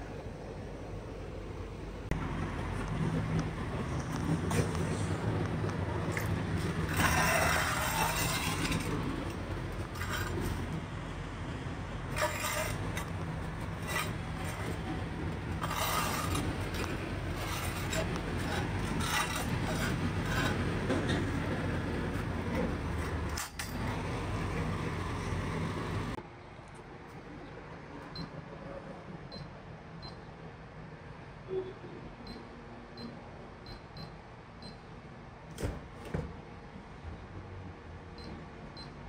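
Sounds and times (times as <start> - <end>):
truck engine droning: 0.8 - 26.2.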